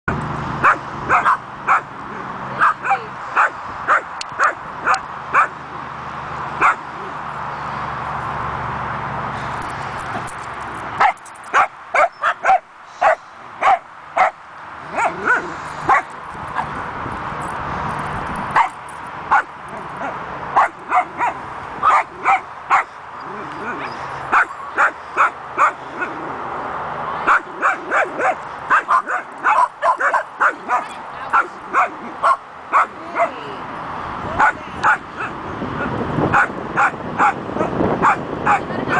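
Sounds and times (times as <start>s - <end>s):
small dog barking: 0.6s - 1.9s, 6.6s - 6.8s, 11.0s - 16.1s, 20.6s - 22.9s, 27.3s - 33.4s, 34.4s - 35.3s, 36.3s - 38.7s.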